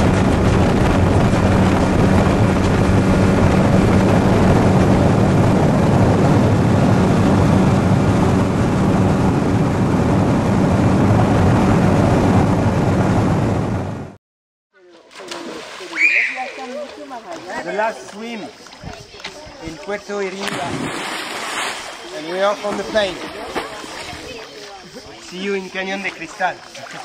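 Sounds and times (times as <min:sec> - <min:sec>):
water rushing: 0:00.0 - 0:14.0, 0:14.8 - 0:27.0
outboard engine running: 0:00.0 - 0:14.2
wind rushing: 0:00.0 - 0:14.2, 0:20.5 - 0:22.0.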